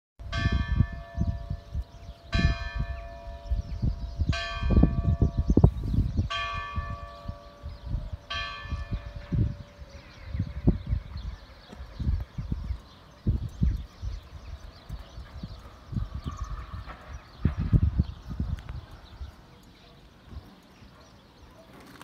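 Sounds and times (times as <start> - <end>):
church bell tolling: 0.3 - 5.6, 6.3 - 10.4.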